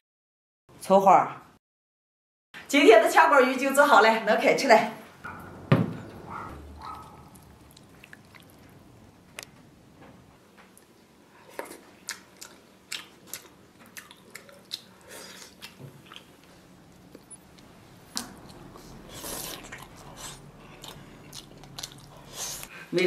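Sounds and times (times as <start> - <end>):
lip smacks and chewing: 6.3 - 8.8, 10.7 - 22.8.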